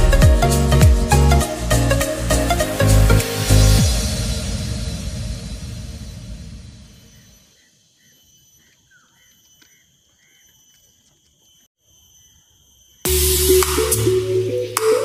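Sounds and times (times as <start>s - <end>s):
electronic music: 0.0s - 6.5s, 13.1s - 15.0s
insects buzzing: 7.0s - 14.5s
bird chirps: 7.0s - 15.0s.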